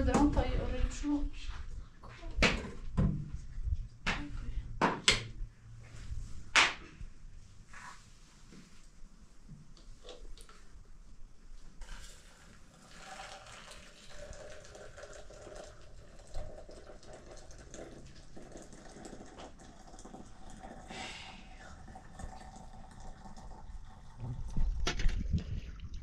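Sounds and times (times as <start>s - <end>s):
water running and splashing: 12.8s - 20.9s.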